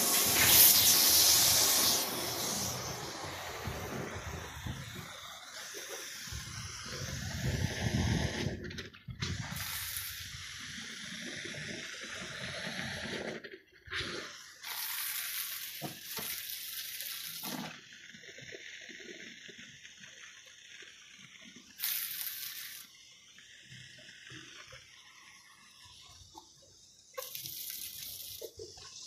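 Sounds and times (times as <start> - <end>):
water running from hose: 0.0 - 29.0.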